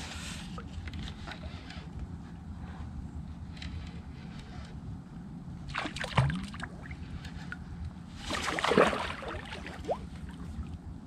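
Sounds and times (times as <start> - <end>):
steady low rumble: 0.0 - 11.0
water splashing and sloshing: 5.6 - 10.9.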